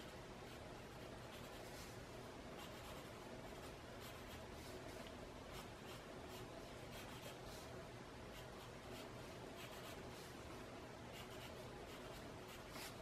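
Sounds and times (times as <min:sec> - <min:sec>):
pencil scratching on paper: 0:00.0 - 0:02.0, 0:02.6 - 0:04.8, 0:05.5 - 0:07.7, 0:08.3 - 0:10.4, 0:11.1 - 0:13.0
low steady hum: 0:00.0 - 0:13.0.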